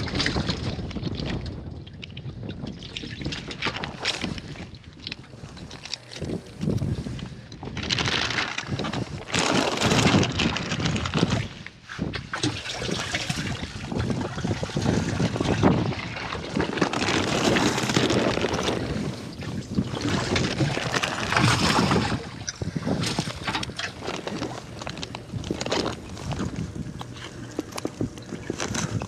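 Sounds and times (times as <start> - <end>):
water sloshing: 0.0 - 29.0
plastic bag crinkling: 7.7 - 11.5, 16.4 - 19.2, 19.8 - 29.0.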